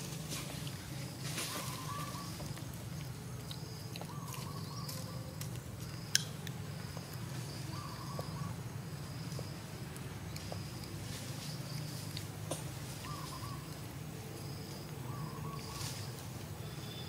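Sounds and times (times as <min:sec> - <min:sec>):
thin small animal calls: 0:01.3 - 0:06.2, 0:12.9 - 0:17.0.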